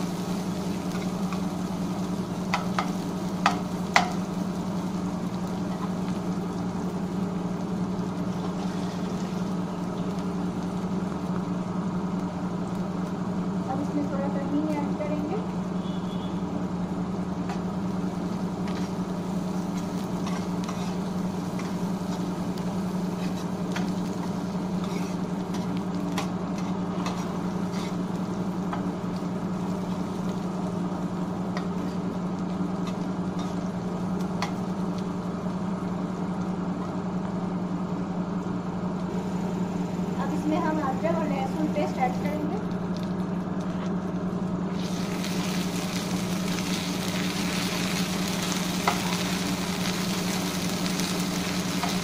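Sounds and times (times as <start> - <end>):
onions sizzling in oil: 0.0 - 43.4, 44.6 - 52.0
spatula stirring in pan: 18.3 - 29.0.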